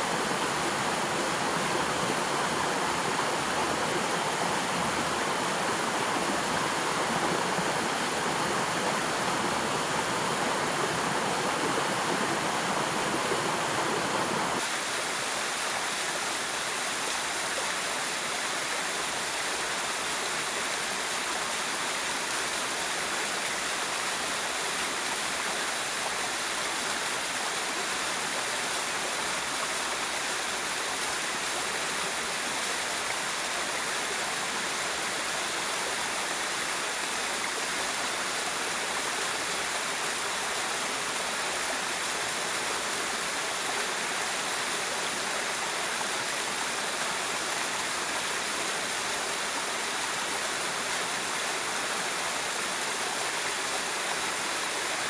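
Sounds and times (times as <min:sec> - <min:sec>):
river flowing: 0:00.0 - 0:55.0.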